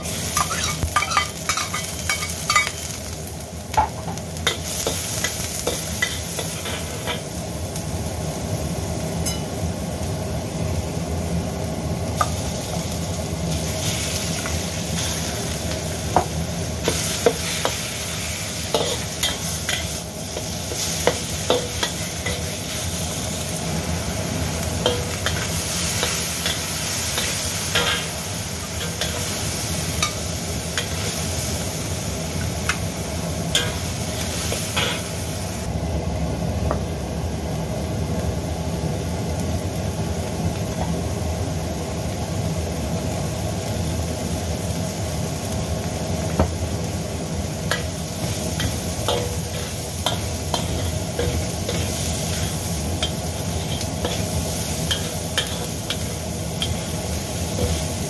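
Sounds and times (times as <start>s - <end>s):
food sizzling in oil: 0.0s - 58.0s
metal spatula scraping wok: 16.8s - 23.0s, 47.7s - 58.0s.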